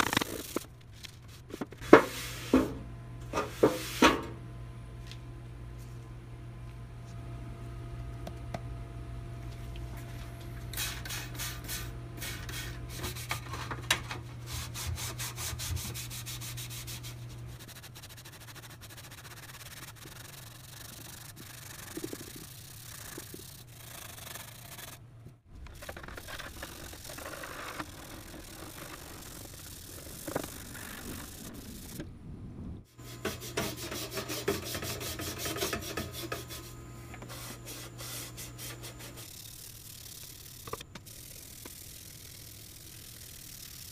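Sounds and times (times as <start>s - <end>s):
scouring pad scrubbing metal pan: 33.1s - 36.6s.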